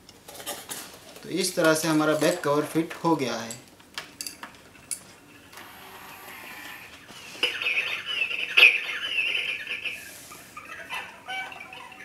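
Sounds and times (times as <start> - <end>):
electronic bird chirping: 7.2 - 12.0.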